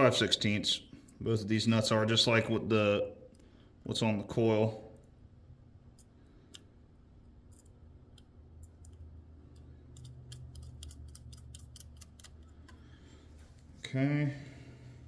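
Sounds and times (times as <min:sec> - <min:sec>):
low steady hum: 0:00.0 - 0:15.0
metallic clicks of nut spinning: 0:07.5 - 0:12.8.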